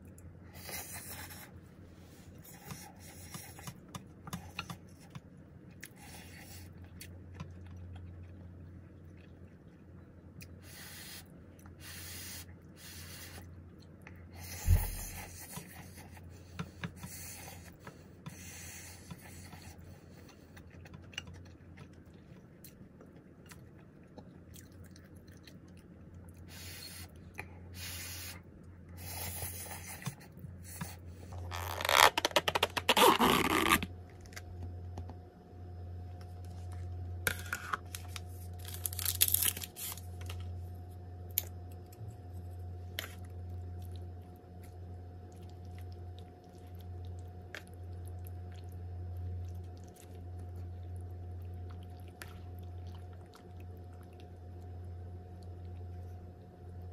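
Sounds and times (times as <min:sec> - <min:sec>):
steady low hum: 0:00.0 - 0:56.9
plastic packaging tearing: 0:31.6 - 0:33.9, 0:37.3 - 0:40.4.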